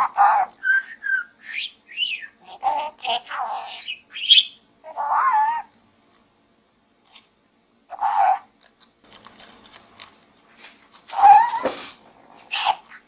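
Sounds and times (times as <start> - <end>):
budgerigar chirping and warbling: 0.0 - 5.7, 7.9 - 8.5, 11.2 - 11.6, 12.4 - 13.0.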